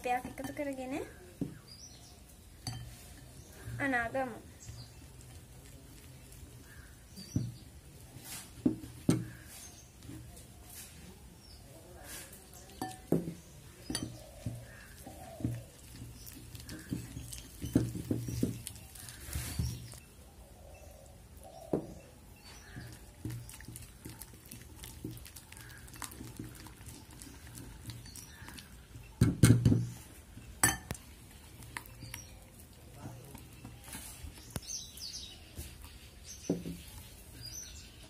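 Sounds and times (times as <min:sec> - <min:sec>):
whisk stirring wet batter: 0:04.6 - 0:11.0, 0:12.0 - 0:20.0, 0:22.6 - 0:29.1.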